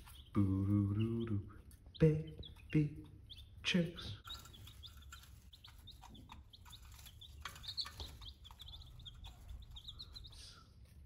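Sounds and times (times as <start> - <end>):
baby chicks peeping: 0.0 - 11.0.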